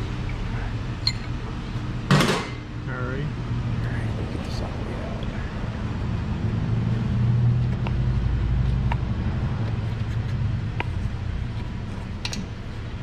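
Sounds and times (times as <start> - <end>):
low mechanical hum: 0.0 - 13.0
wrench clicking: 1.0 - 1.3.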